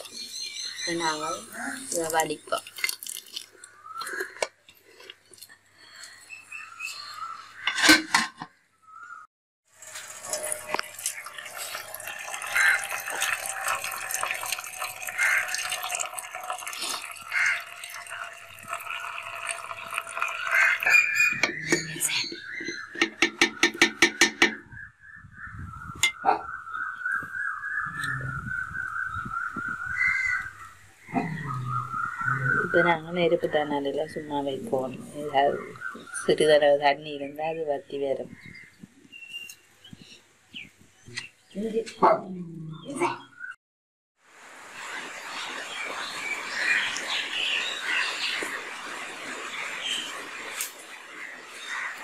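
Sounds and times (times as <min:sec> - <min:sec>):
water pouring from pot: 0:01.9 - 0:04.3, 0:09.7 - 0:22.1.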